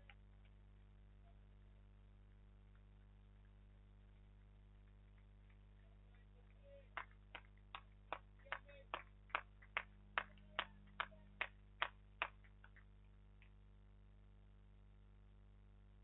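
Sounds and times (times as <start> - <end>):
person clapping: 4.8 - 13.5.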